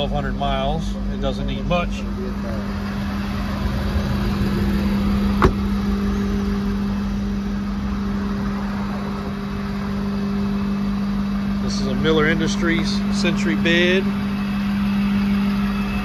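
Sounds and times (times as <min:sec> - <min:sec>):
diesel engine idling: 0:00.0 - 0:16.0
sharp knock: 0:05.4 - 0:05.6.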